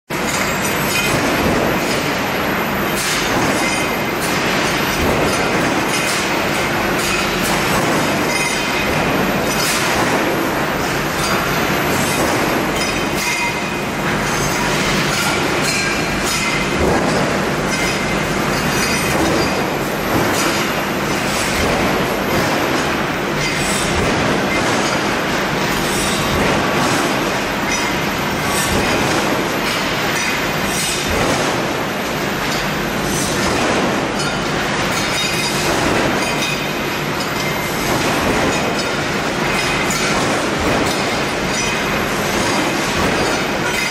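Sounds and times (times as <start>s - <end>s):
steady machine noise: 0.1s - 43.9s.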